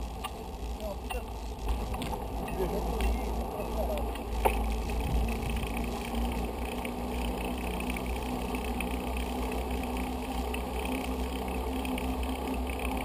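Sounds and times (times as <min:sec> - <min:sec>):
bicycle tyres on paved road: 0:00.0 - 0:13.0
faint steady hum: 0:00.0 - 0:13.0
wind rumble on microphone: 0:04.2 - 0:06.4.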